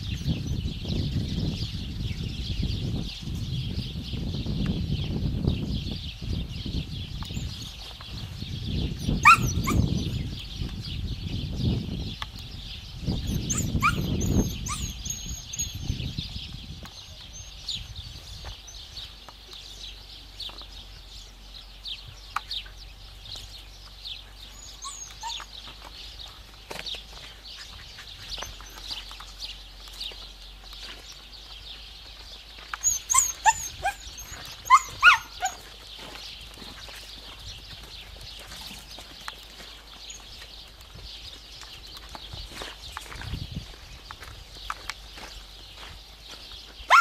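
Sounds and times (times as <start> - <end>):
dog yipping and barking: 9.0 - 10.1, 13.3 - 15.9, 24.6 - 25.5, 32.8 - 35.6.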